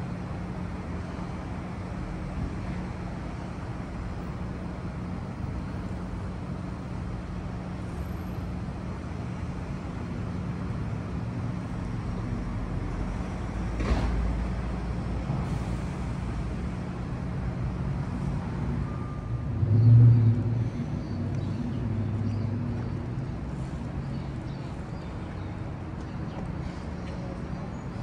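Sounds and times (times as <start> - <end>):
street traffic rumble: 0.0 - 28.0
louder vehicle engine: 7.9 - 23.8.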